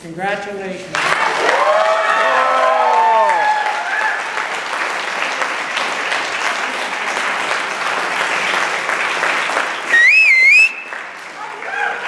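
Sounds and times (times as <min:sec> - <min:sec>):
audience applauding: 0:00.9 - 0:12.0
high wavering whistle: 0:09.9 - 0:11.0.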